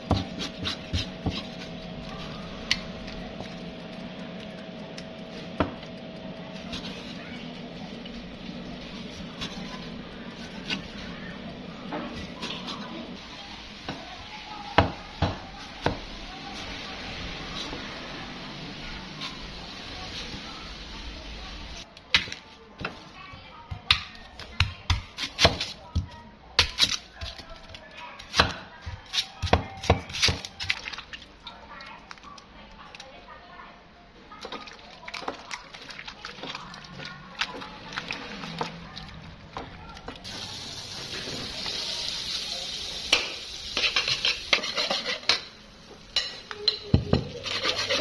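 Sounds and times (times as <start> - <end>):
knife slicing onion: 0.0 - 1.8, 23.8 - 26.0, 26.6 - 30.7, 43.7 - 45.5, 47.2 - 48.0
low background hum: 0.0 - 42.3.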